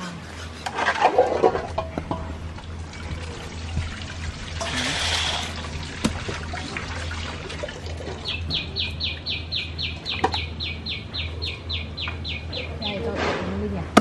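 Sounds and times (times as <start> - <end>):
steady low hum: 0.0 - 14.0
water trickling: 2.4 - 9.5.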